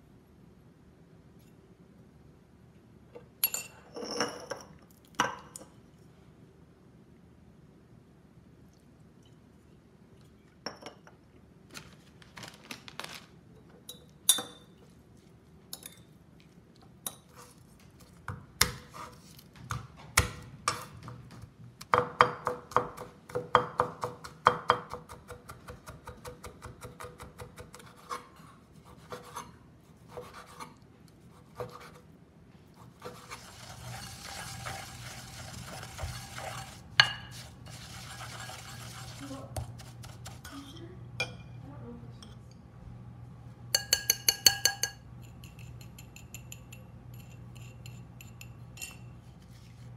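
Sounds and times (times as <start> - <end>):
pestle grinding in mortar: 33.0 - 40.4.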